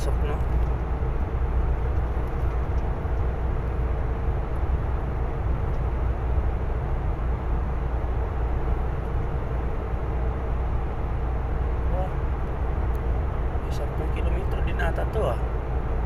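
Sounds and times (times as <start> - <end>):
faint steady hum: 0.0 - 16.0
truck engine and tyre rumble: 0.0 - 16.0.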